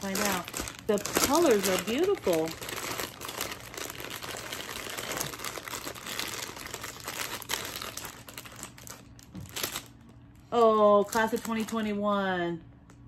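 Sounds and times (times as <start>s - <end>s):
plastic bag crinkling: 0.0s - 12.0s.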